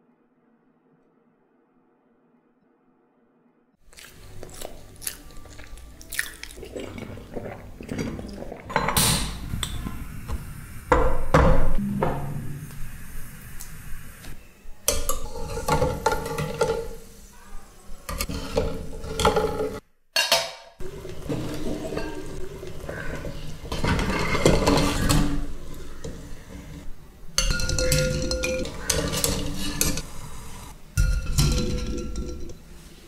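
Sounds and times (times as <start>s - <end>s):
metal lid clinking on pot: 27.4s - 30.0s
wire skimmer clinking against pot: 27.4s - 30.0s.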